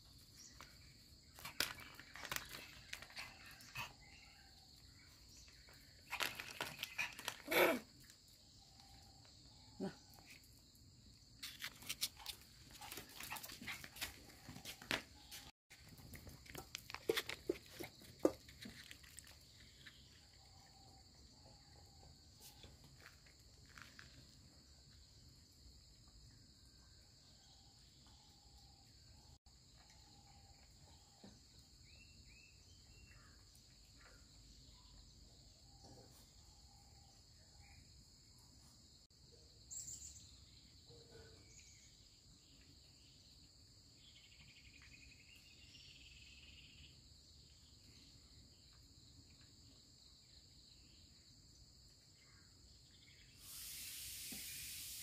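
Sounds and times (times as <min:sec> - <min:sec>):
insects chirring: 0:42.8 - 0:55.0
steady hiss: 0:53.2 - 0:55.0.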